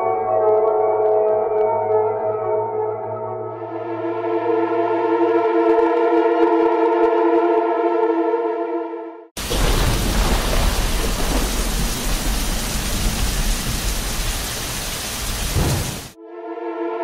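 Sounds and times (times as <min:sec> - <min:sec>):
heavy rain: 0:09.4 - 0:16.2
thunder rumbling: 0:09.4 - 0:16.2.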